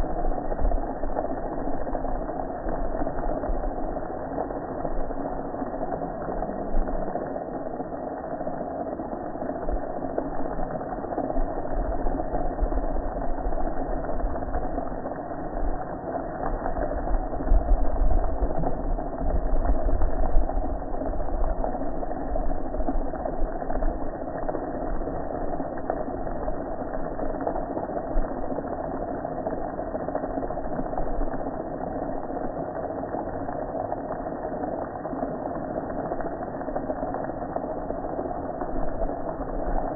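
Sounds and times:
deep rumble: 0.0s - 8.0s, 9.0s - 28.3s.

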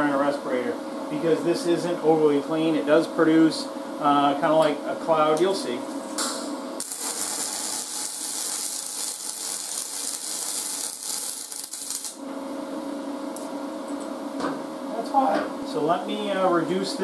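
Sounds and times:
welding arc hissing and crackling: 6.8s - 12.2s.

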